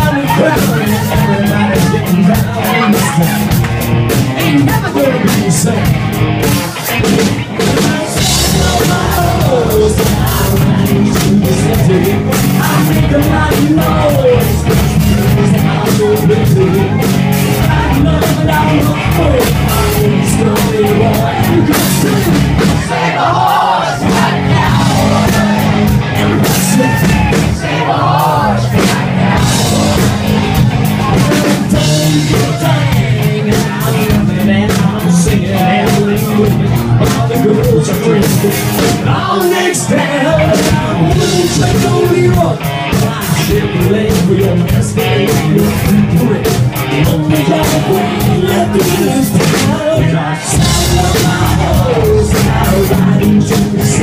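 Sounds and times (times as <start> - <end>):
live rock band playing: 0.0 - 54.0
singing into microphones: 0.0 - 54.0.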